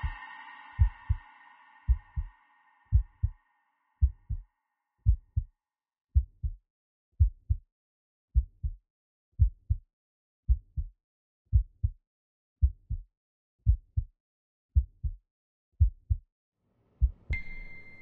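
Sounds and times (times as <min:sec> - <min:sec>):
slow heartbeat: 0:00.0 - 0:03.4, 0:04.0 - 0:05.5, 0:06.2 - 0:06.6, 0:07.2 - 0:07.6, 0:08.4 - 0:08.8, 0:09.4 - 0:09.8, 0:10.5 - 0:10.9, 0:11.5 - 0:12.0, 0:12.6 - 0:14.1, 0:14.8 - 0:15.2, 0:15.8 - 0:16.2, 0:17.0 - 0:17.4.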